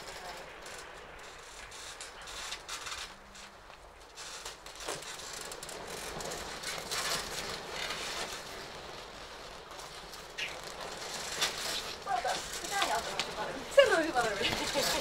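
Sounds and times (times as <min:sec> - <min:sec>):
clothing rustling: 0:01.3 - 0:15.0
people grappling on mats: 0:10.4 - 0:15.0.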